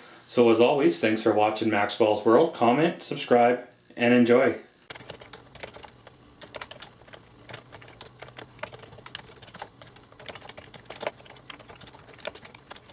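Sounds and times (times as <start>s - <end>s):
faint low hum: 0.3s - 12.9s
keyboard typing: 4.9s - 12.9s.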